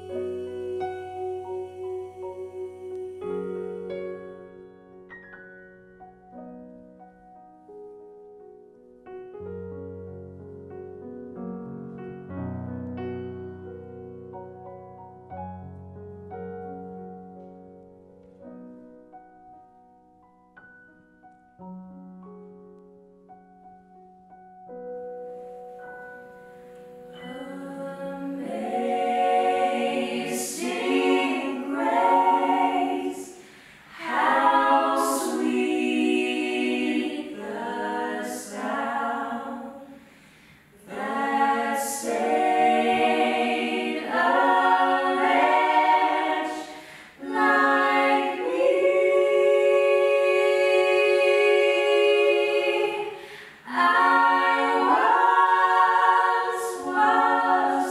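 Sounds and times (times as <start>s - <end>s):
vocal group singing a cappella: 0.0s - 4.2s, 27.0s - 57.9s.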